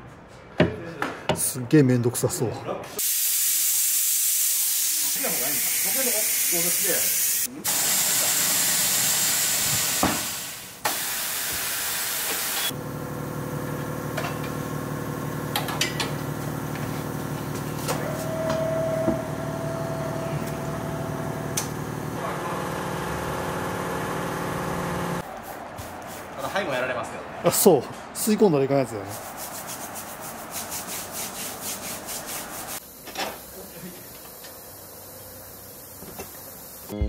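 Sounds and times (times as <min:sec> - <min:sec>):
compressed air hissing: 0:03.0 - 0:12.7
machine motor humming: 0:12.6 - 0:25.2.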